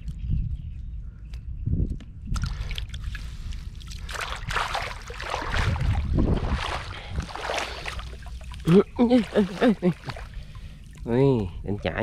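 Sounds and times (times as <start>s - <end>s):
wind rumble on microphone: 0.0s - 8.4s
water splashing and dripping: 2.3s - 12.0s.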